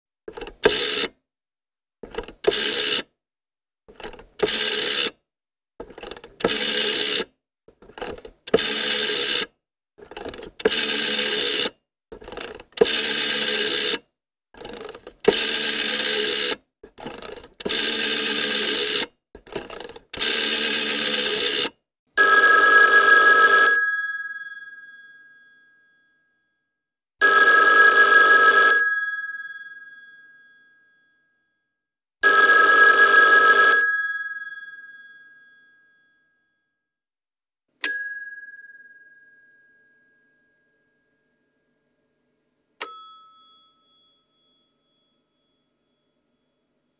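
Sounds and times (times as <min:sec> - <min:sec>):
rotary telephone dial whirring: 0:00.3 - 0:01.2, 0:02.0 - 0:03.1, 0:03.9 - 0:05.2, 0:05.8 - 0:23.9, 0:27.2 - 0:29.0, 0:32.2 - 0:34.0
telephone bell ringing: 0:02.5 - 0:03.0, 0:04.4 - 0:05.1, 0:06.5 - 0:07.3, 0:08.6 - 0:09.5, 0:10.6 - 0:11.7, 0:12.8 - 0:14.0, 0:15.3 - 0:16.6, 0:17.6 - 0:19.0, 0:20.2 - 0:26.6, 0:27.2 - 0:31.6, 0:32.2 - 0:36.7, 0:37.8 - 0:41.7, 0:42.8 - 0:46.1.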